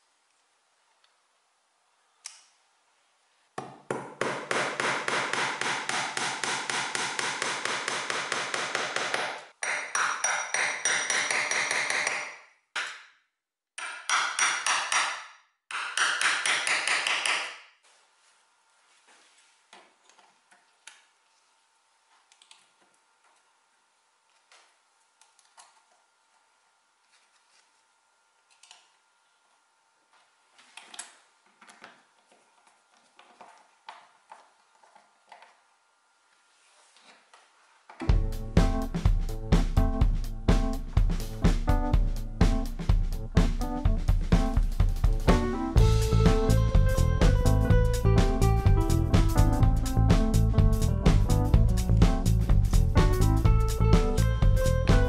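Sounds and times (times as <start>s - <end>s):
small hammer tapping a punch: 3.6s - 13.0s, 13.8s - 17.6s.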